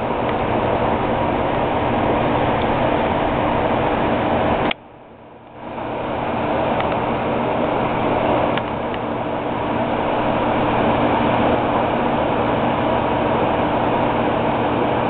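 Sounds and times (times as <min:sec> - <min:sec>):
even rushing noise: 0:00.0 - 0:04.7, 0:05.6 - 0:14.5
steady mechanical hum: 0:00.0 - 0:15.0.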